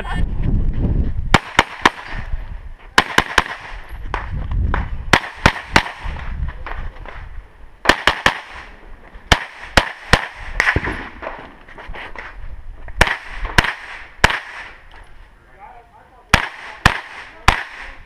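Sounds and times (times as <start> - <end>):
gunshots: 1.3 - 2.3, 3.0 - 7.2, 7.8 - 11.5, 13.0 - 14.8, 16.3 - 18.0.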